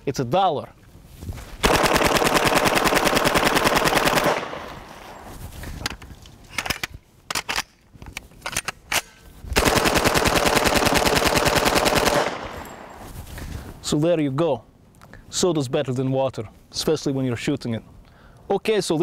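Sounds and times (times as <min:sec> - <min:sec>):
submachine gun bursts: 0:01.6 - 0:04.7, 0:09.6 - 0:12.9.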